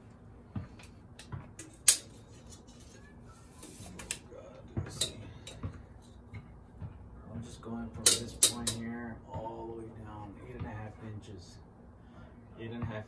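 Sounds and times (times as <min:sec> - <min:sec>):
clicks and taps on metal: 0:08.0 - 0:08.9.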